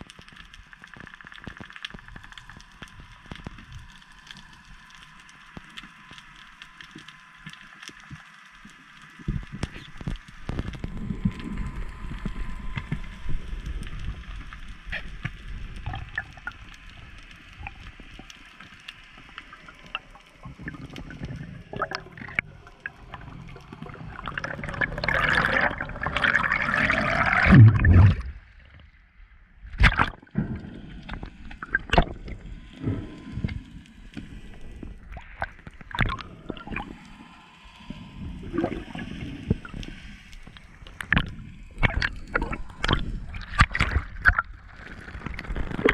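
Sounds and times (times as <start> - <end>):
low underwater wash: 0.0 - 45.9
air bubbles rushing: 19.7 - 28.8, 29.7 - 37.0, 38.2 - 45.9
underwater clicks: 29.8 - 36.9, 39.5 - 45.9.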